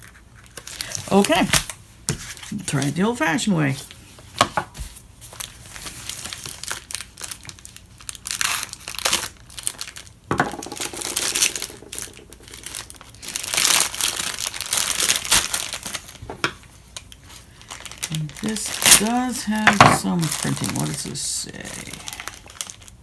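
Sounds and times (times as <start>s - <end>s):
plastic pouch crinkling and tearing: 0.0s - 1.8s, 5.3s - 10.3s, 10.9s - 16.2s, 16.8s - 23.0s.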